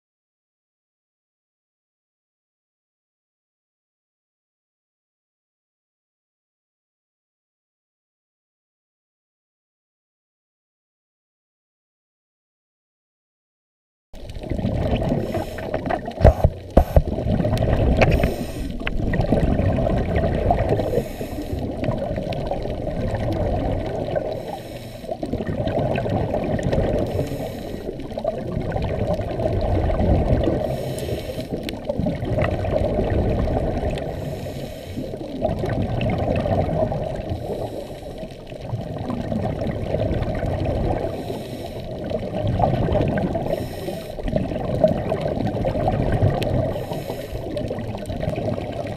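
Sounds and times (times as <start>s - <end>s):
regulator bubbles: 14.2s - 34.4s, 35.0s - 48.9s
muffled underwater noise: 14.2s - 48.9s.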